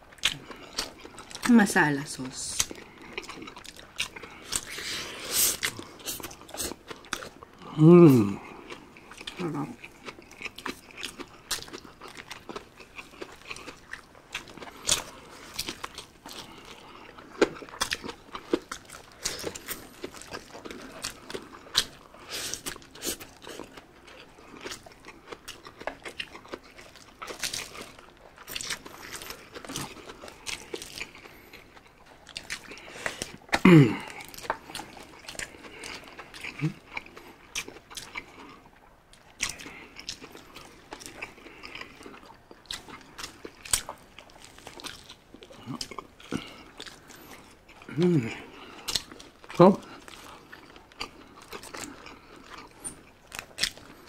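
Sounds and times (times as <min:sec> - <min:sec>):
chewing and mouth clicks: 0:00.0 - 0:54.0
person humming mm: 0:07.6 - 0:08.4, 0:33.6 - 0:34.2, 0:47.9 - 0:48.5.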